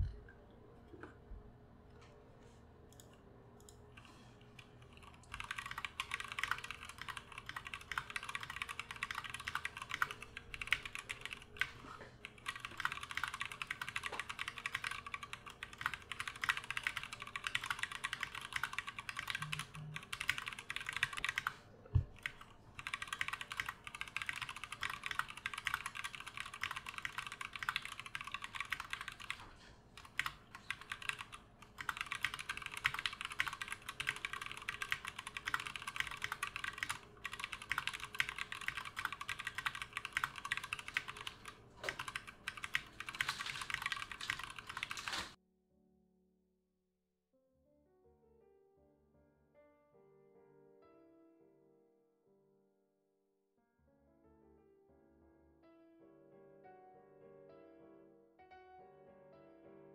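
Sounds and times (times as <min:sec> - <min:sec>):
mechanical keyboard typing: 0:02.9 - 0:45.4.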